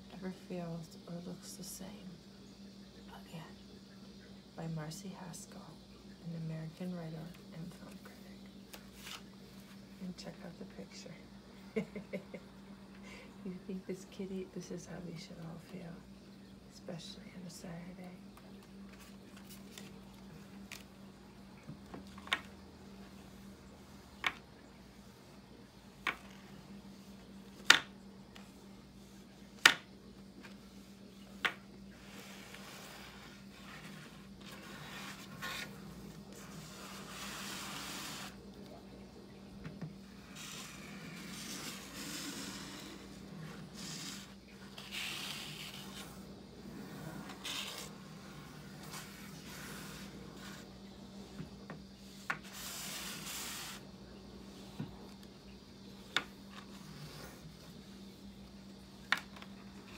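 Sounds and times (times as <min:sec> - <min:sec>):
fingernails scratching book cover: 0:32.0 - 0:38.4, 0:40.3 - 0:50.7, 0:52.2 - 0:53.8.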